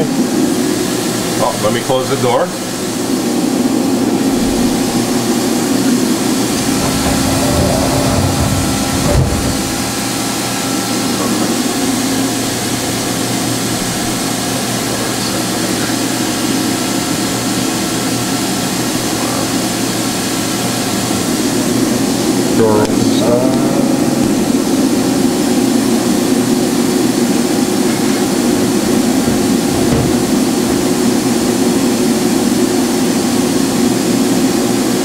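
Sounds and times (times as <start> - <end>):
machine mechanical hum: 0.0 - 35.0
heavy low rumble: 4.1 - 10.4, 28.2 - 32.3
machine clunk: 6.4 - 10.4, 27.8 - 31.8.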